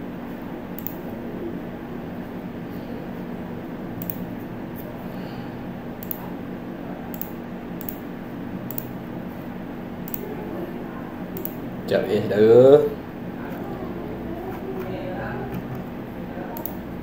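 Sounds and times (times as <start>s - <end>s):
low electrical hum: 0.0s - 17.0s
computer mouse clicks: 0.8s - 1.1s, 4.0s - 4.2s, 6.0s - 6.3s, 7.1s - 8.0s, 8.7s - 9.0s, 10.0s - 10.3s, 11.4s - 11.6s, 16.6s - 16.8s.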